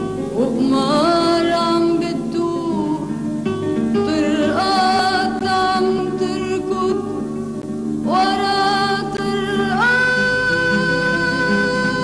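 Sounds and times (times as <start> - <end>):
plucked string accompaniment: 0.0 - 12.0
person singing long sliding notes: 8.1 - 12.0.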